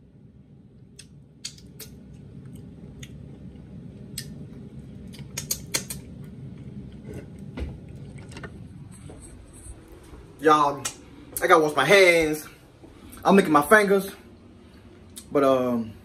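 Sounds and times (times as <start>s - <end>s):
person licking fingers: 5.0s - 6.1s.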